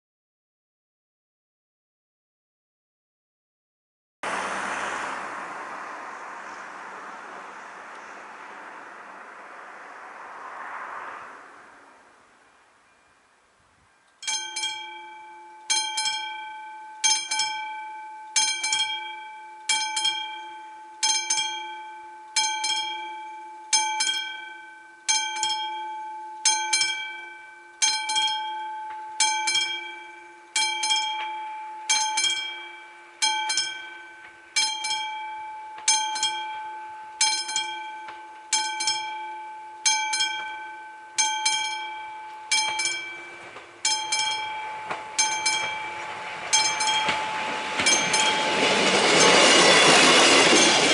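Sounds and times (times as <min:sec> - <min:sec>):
level-crossing warning bell ringing: 0:14.2 - 0:50.9.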